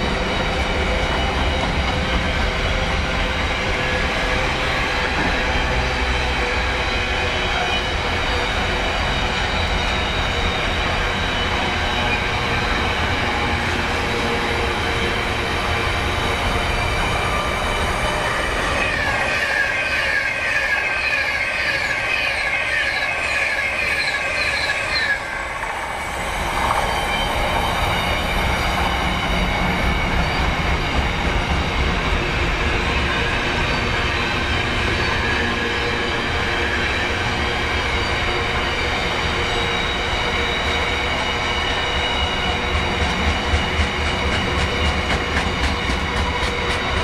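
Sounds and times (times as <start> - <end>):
high-pitched squealing whine: 0.0 - 31.8
train passing rumble: 0.0 - 47.0.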